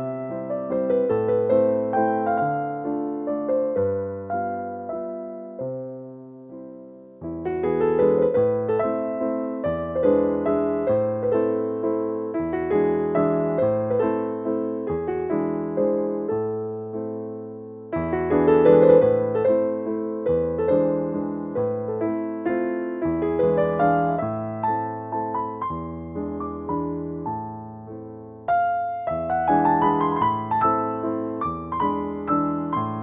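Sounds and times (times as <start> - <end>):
gentle piano piece: 0.0 - 33.0.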